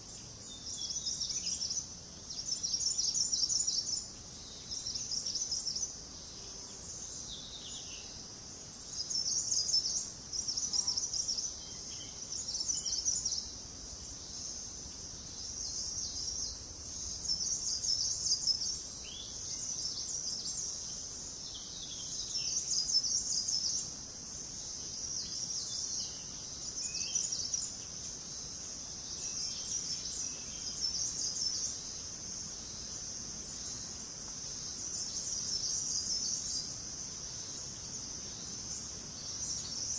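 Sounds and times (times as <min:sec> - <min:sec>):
insects chorus: 0:00.0 - 0:39.9.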